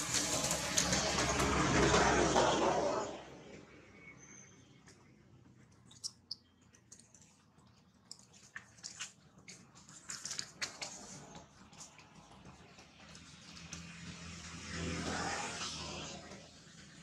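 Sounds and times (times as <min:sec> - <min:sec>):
monkey chewing corn: 0:05.8 - 0:13.8.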